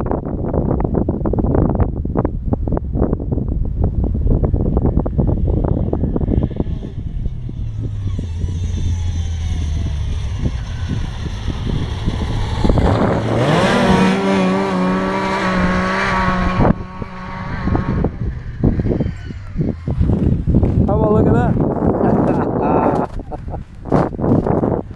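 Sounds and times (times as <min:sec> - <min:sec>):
wind buffeting microphone: 0:00.0 - 0:24.9
snowmobile engine revving: 0:05.0 - 0:24.3.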